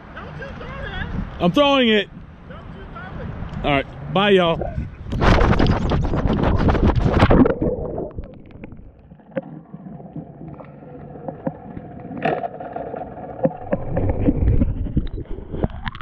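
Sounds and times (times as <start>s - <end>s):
underwater knocks: 13.4s - 16.0s.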